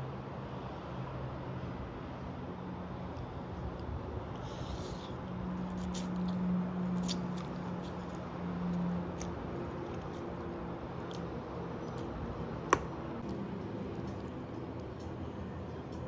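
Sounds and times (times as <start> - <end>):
squishy eating sounds: 3.1 - 15.0.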